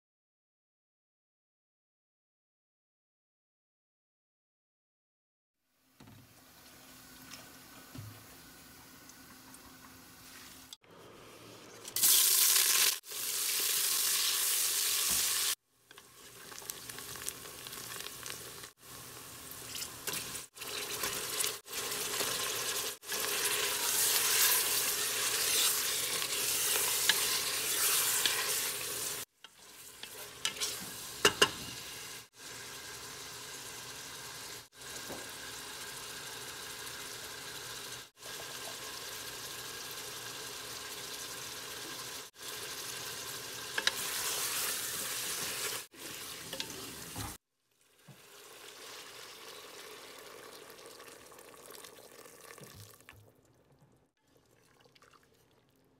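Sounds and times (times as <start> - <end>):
food sizzling in hot oil: 11.7 - 52.7.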